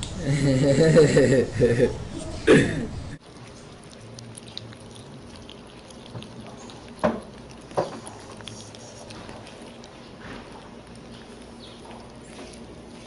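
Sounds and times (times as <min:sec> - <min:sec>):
wet eating clicks and drips: 0:03.2 - 0:13.0.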